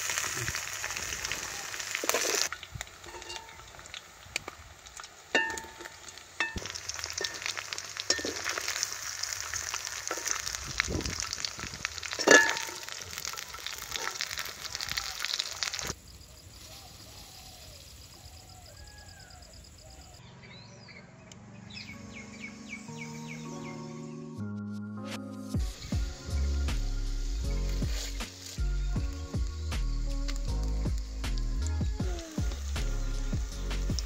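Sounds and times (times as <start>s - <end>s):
chicken sizzling in hot oil: 0.0s - 16.0s, 25.6s - 34.0s.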